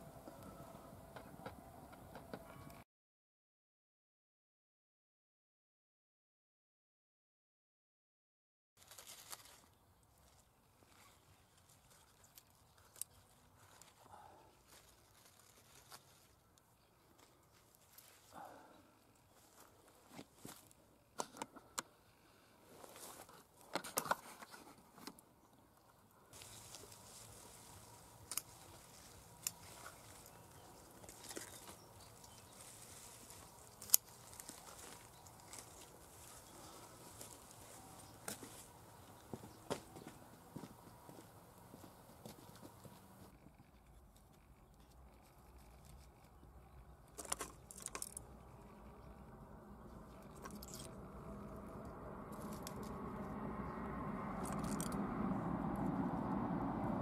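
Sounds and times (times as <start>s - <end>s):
dry sticks crackling: 8.8s - 14.1s, 26.4s - 39.8s, 47.0s - 48.6s, 50.0s - 51.3s, 52.3s - 53.2s
plants rustling: 8.8s - 18.6s, 26.4s - 40.7s.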